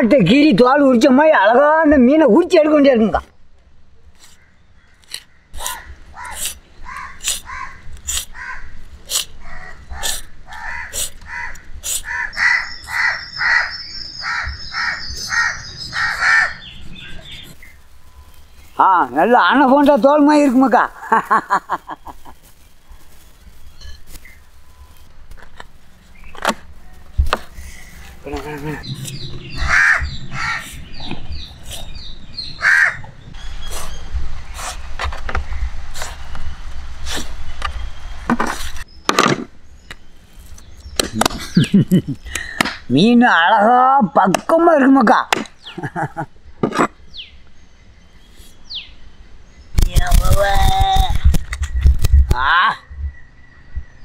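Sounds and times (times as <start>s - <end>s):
crows cawing: 4.2s - 17.4s, 27.6s - 31.1s, 32.4s - 33.2s.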